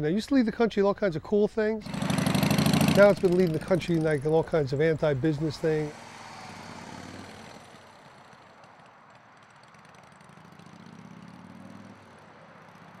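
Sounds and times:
faint motorcycle engine running: 0:01.8 - 0:05.0, 0:07.2 - 0:13.0.

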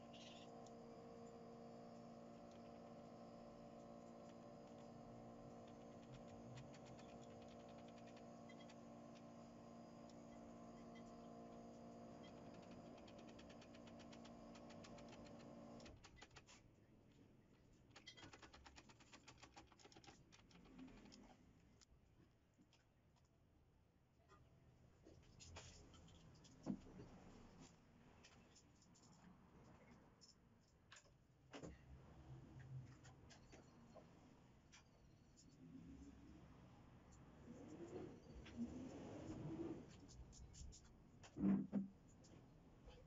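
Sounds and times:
faint rapid clicking: 0:03.8 - 0:09.4, 0:12.2 - 0:16.7, 0:17.8 - 0:21.9.

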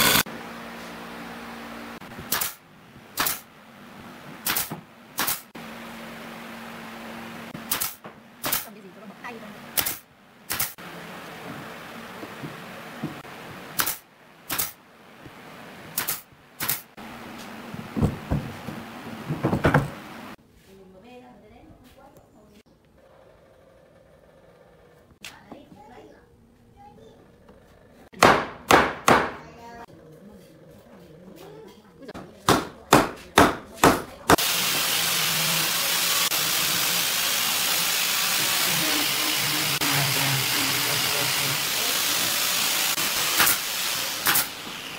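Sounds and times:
sharp hissing snaps: 0:09.8 - 0:10.8
sharp knocks on wooden frame: 0:28.2 - 0:29.4, 0:32.5 - 0:34.1
loud steady hiss: 0:34.3 - 0:44.9.

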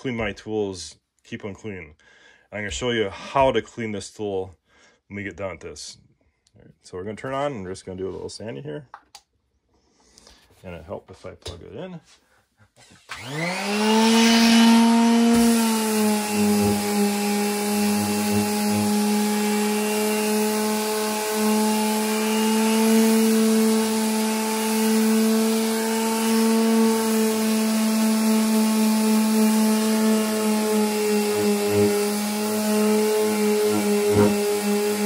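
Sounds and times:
orbital sander sanding wood: 0:13.1 - 0:35.0.

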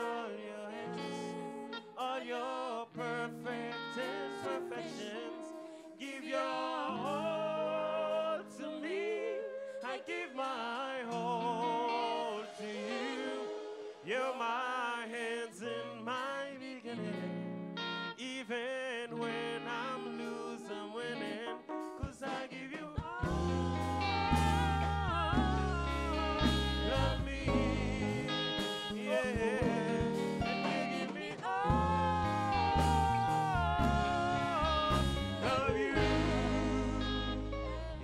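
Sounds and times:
person singing with vibrato: 0:00.0 - 0:17.5, 0:18.1 - 0:38.0
band with strong bass line: 0:23.2 - 0:38.0.

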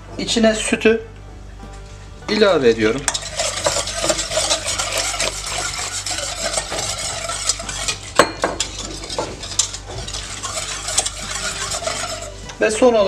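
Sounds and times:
whisk scraping metal pot: 0:02.2 - 0:13.0
whisk knocking on pot: 0:02.3 - 0:12.6.

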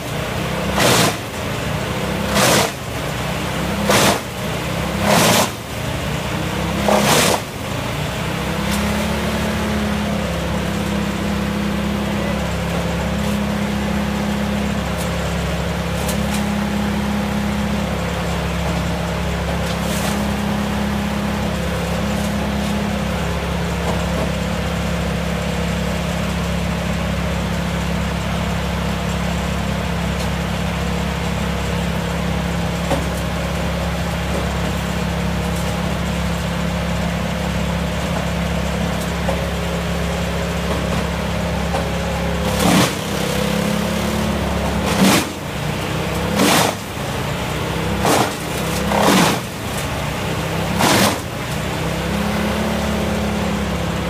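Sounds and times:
brush chipper engine running: 0:00.0 - 0:54.0
log being chipped: 0:41.7 - 0:53.3.

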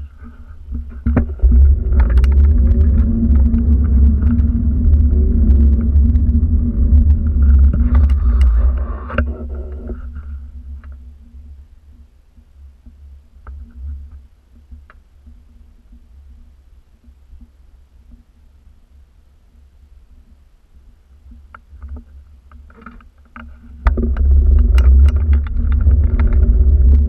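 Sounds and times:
faint clicks: 0:00.0 - 0:10.0
wind buffeting: 0:00.0 - 0:10.8, 0:23.8 - 0:27.0.

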